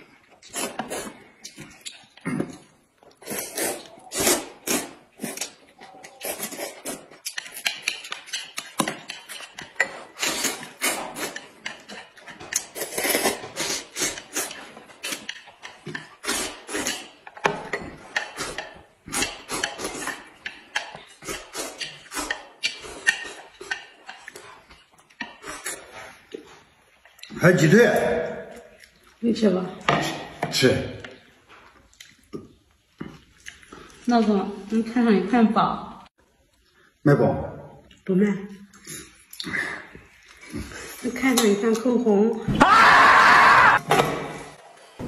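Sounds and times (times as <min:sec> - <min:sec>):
people slurping noodles: 0:00.4 - 0:17.2, 0:18.1 - 0:24.6, 0:25.2 - 0:26.6.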